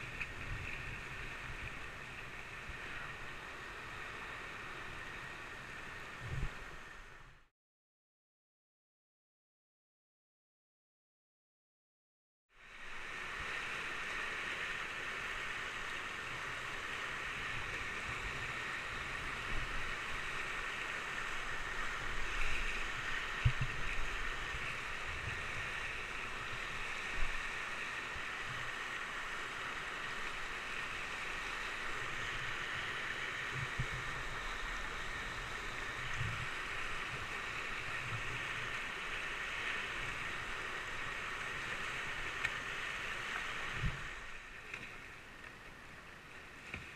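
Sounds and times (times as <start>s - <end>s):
whitewater rapids rushing: 12.8s - 46.6s.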